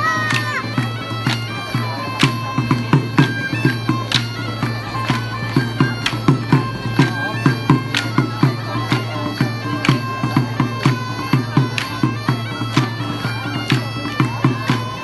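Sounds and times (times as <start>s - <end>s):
reed wind instruments playing folk dance: 0.0s - 15.0s
low thumping beat: 2.2s - 8.6s.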